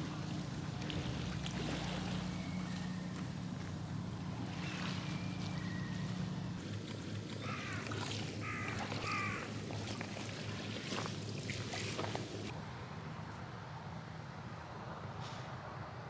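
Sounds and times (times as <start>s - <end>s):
low engine hum: 0.0s - 16.0s.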